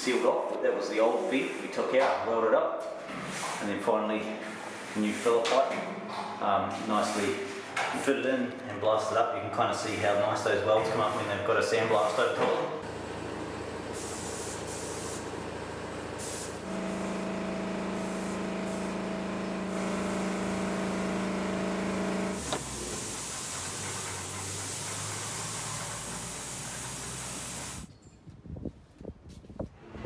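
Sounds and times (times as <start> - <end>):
machine hum: 12.8 - 24.8
steady air hiss: 14.0 - 15.2, 16.2 - 16.6, 22.4 - 27.9.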